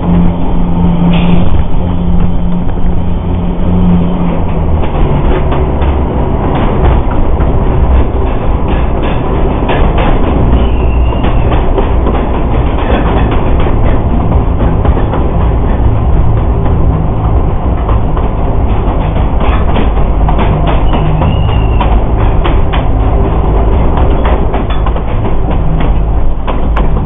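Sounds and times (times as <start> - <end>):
train rolling rumble: 0.0 - 27.0
wheels clicking over rail joints: 0.0 - 27.0
high wheel squeals: 10.4 - 11.8, 20.6 - 22.2.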